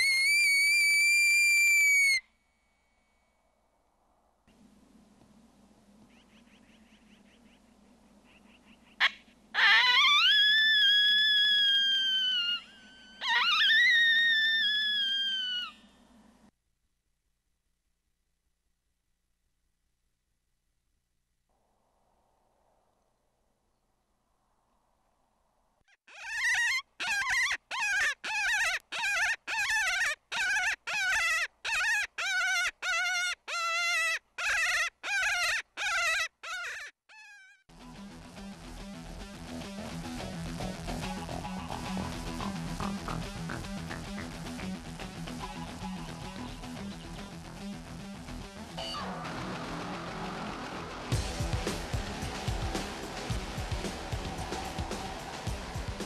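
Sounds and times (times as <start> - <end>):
coyote howler call: 9.0 - 15.8
guitar music: 37.7 - 56.0.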